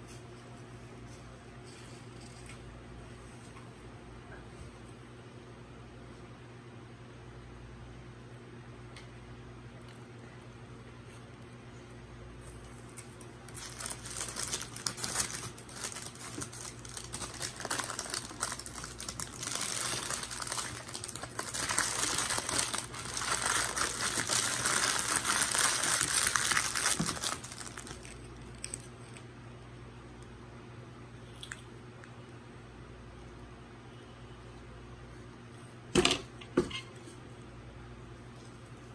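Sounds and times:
food packaging crinkling: 0:12.8 - 0:29.2.

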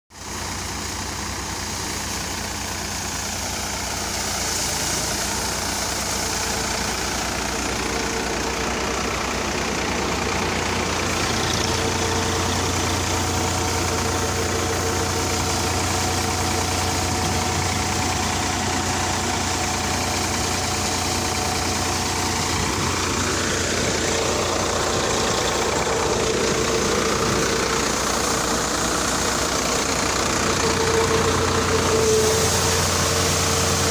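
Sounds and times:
tractor engine running: 0:00.1 - 0:33.9
threshing machinery hum: 0:00.2 - 0:33.9.

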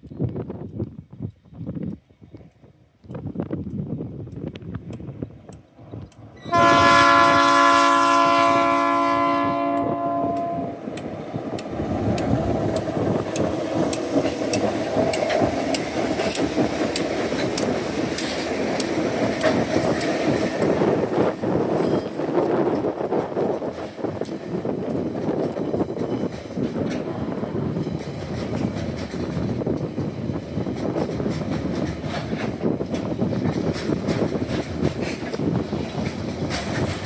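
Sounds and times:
locomotive engines rumbling: 0:04.1 - 0:37.0
locomotive chord horn blast: 0:06.4 - 0:10.8
wheels clicking over rail joints: 0:10.4 - 0:37.0.

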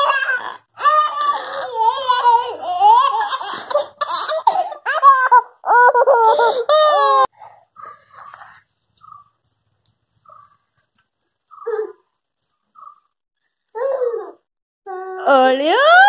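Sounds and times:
toddler laughing: 0:00.0 - 0:07.3.

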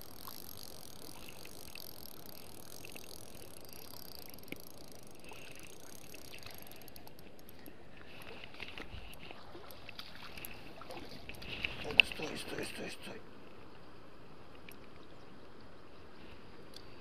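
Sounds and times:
spinning reel being wound: 0:00.0 - 0:07.6
light clicks of fishing tackle: 0:00.0 - 0:13.1, 0:16.6 - 0:17.0
outdoor background noise: 0:00.0 - 0:17.0.

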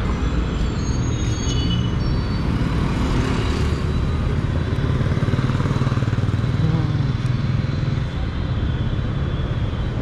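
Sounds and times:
rumble of vehicles: 0:00.0 - 0:10.0
engine running close by: 0:02.7 - 0:10.0.

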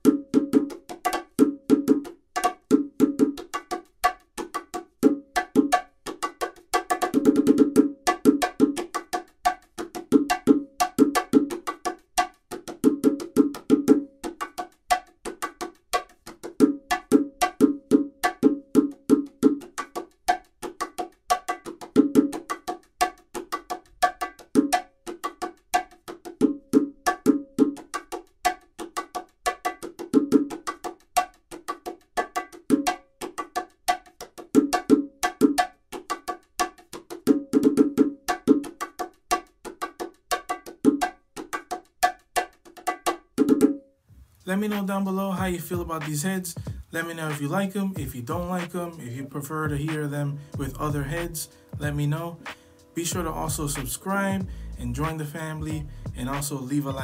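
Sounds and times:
bongos played with hands: 0:00.0 - 0:57.0.

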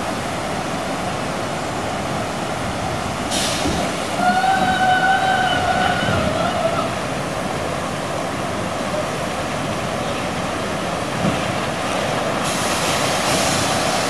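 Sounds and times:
water rushing and splashing: 0:00.0 - 0:14.0
rider sliding hiss: 0:03.3 - 0:04.0, 0:12.4 - 0:14.0.

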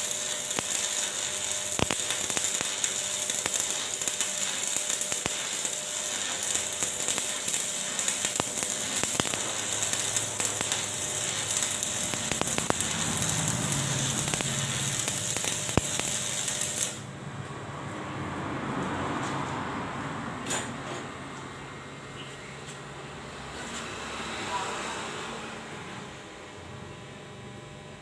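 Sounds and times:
sharp welding pops: 0:00.0 - 0:17.0
welding arc crackling and hissing: 0:00.0 - 0:17.1.

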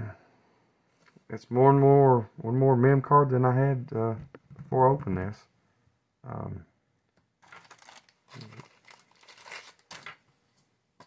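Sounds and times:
plastic crinkling: 0:07.4 - 0:10.3.

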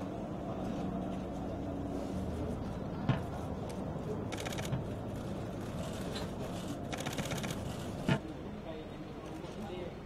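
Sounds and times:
street background noise: 0:00.0 - 0:10.0
rapid clicking: 0:06.9 - 0:07.6.

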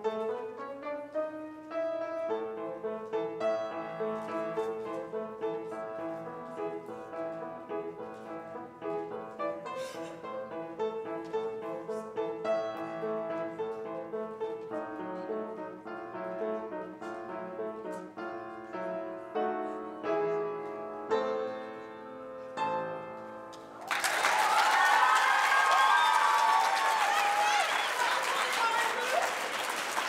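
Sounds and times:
piano playing: 0:00.0 - 0:27.1
audience applause and cheering: 0:23.8 - 0:30.0.

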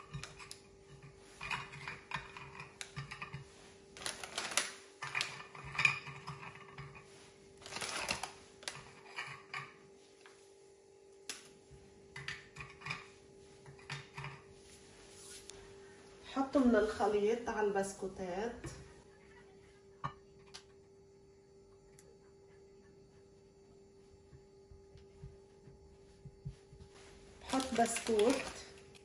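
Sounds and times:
rustling: 0:00.0 - 0:09.5, 0:26.7 - 0:29.0
faint steady hum: 0:00.0 - 0:29.0.

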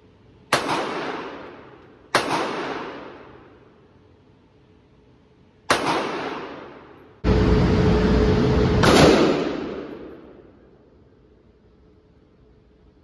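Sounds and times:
echoing gunshots: 0:00.5 - 0:03.8, 0:05.6 - 0:07.2, 0:08.7 - 0:10.8.

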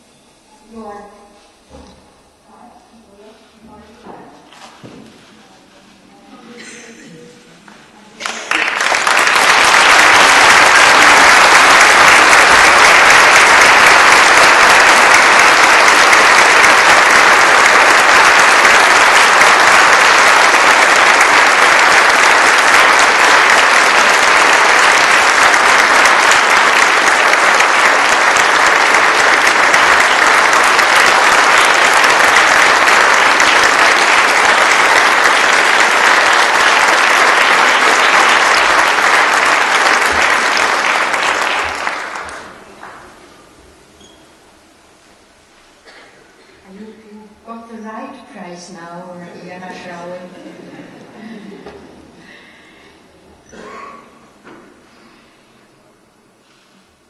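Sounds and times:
audience applauding: 0:08.2 - 0:43.2.

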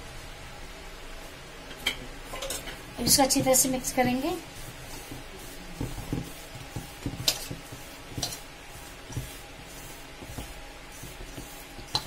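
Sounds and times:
hand mixing flour in steel bowl: 0:03.0 - 0:12.0.

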